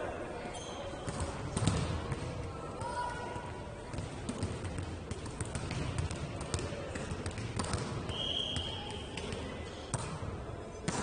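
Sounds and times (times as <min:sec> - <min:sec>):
ball thumping and bouncing: 0:01.1 - 0:02.4, 0:03.9 - 0:08.1
referee's whistle blast: 0:08.1 - 0:08.8.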